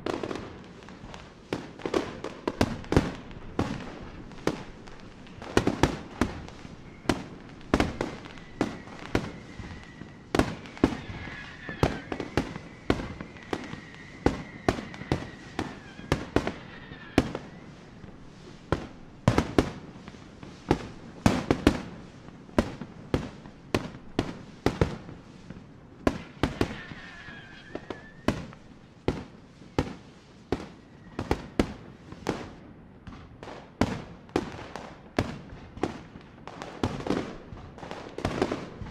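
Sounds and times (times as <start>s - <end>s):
fireworks bangs: 0.0s - 38.9s
high falling whistle: 6.1s - 18.1s, 26.2s - 28.3s.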